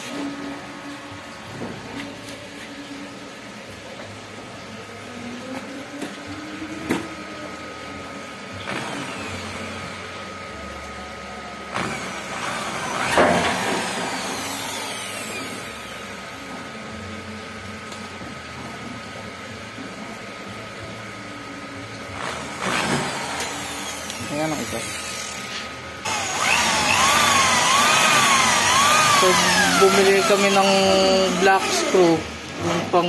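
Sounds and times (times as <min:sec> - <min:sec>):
cordless drill driving screws: 0:11.8 - 0:15.7, 0:26.1 - 0:32.2.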